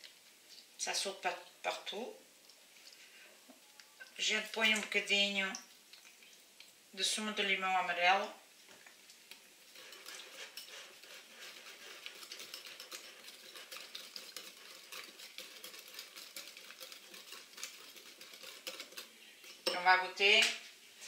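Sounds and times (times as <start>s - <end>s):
whisk ticking against bowl: 9.7s - 19.8s.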